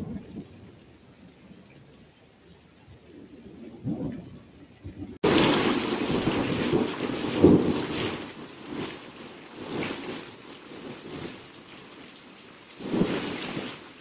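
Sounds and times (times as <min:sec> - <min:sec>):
heavy rain pouring: 0:00.0 - 0:02.1, 0:03.0 - 0:14.0
wind buffeting microphone: 0:02.9 - 0:11.7.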